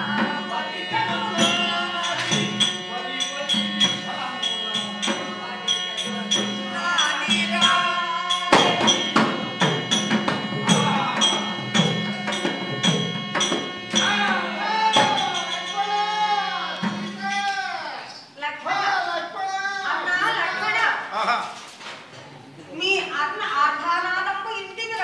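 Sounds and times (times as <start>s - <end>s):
sharp percussion strikes: 0.0s - 17.8s.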